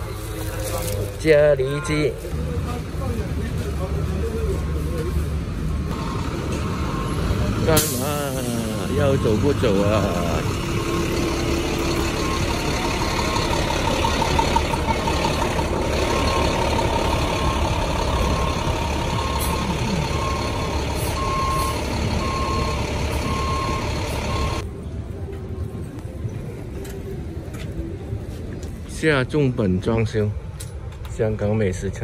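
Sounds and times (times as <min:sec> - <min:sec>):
street traffic noise: 0:00.0 - 0:32.0
reversing alarm beeping: 0:05.9 - 0:24.6.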